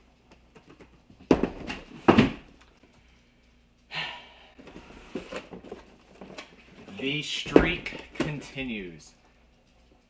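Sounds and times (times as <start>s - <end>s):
cardboard boxes thumping: 1.2s - 2.5s.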